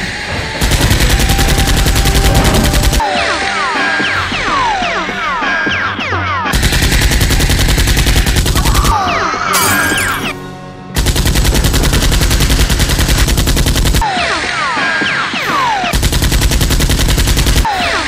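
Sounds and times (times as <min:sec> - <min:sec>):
background music: 0:00.0 - 0:12.9
automatic gunfire bursts: 0:00.6 - 0:03.1, 0:06.5 - 0:08.9, 0:11.0 - 0:14.0, 0:15.7 - 0:18.0.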